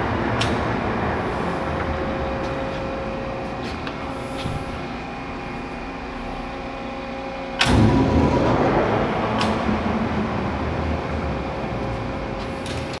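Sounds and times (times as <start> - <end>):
lathe gearing rumbling: 0.0 - 13.0
motor hum: 0.0 - 13.0.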